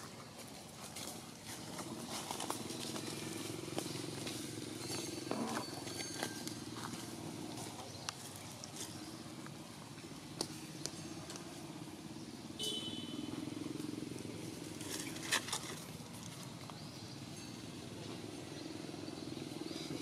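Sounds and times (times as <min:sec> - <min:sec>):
dry leaves crackling: 0:00.0 - 0:09.6.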